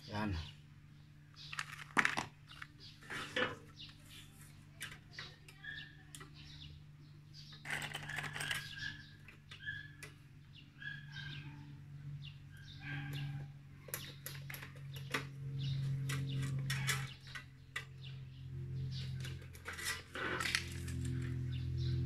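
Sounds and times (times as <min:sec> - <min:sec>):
steady low hum: 0:00.0 - 0:22.0
bird chirps: 0:05.1 - 0:19.8.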